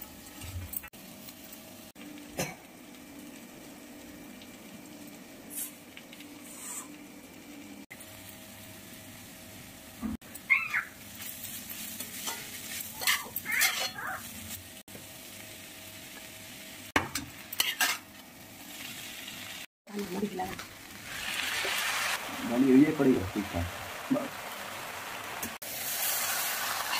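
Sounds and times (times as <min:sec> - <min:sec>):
food sizzling in a pan: 0:00.0 - 0:26.9
spatula scraping a pan: 0:11.2 - 0:14.0, 0:17.6 - 0:18.0.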